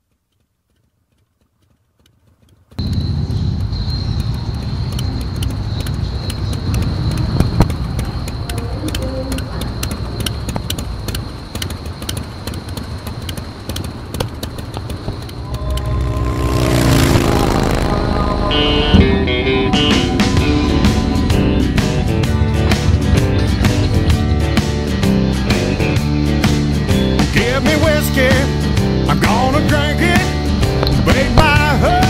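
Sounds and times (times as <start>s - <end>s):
irregular clicks: 0.0s - 16.0s
motorcycle engine idling: 0.8s - 32.0s
high whine: 14.4s - 32.0s.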